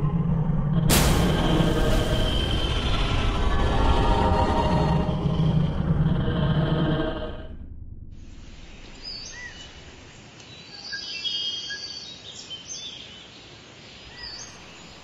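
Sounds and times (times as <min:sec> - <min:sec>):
low hiss: 0:08.2 - 0:11.2.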